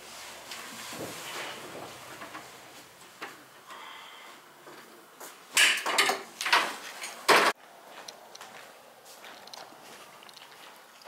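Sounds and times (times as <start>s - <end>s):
loud scraping rustling noises: 0.0s - 3.1s.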